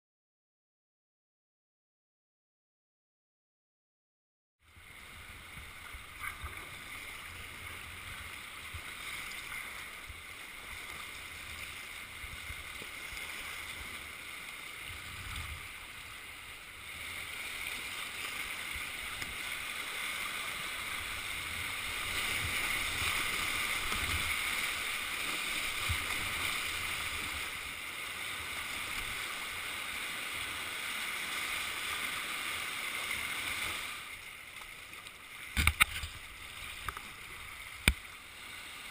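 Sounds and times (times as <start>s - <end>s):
whitewater rushing over rocks: 17.1s - 34.2s.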